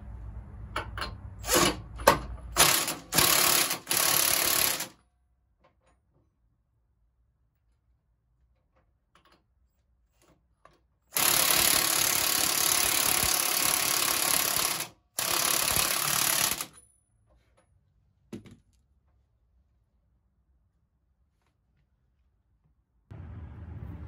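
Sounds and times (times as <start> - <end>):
impact driver running: 2.6 - 5.0, 11.2 - 16.7.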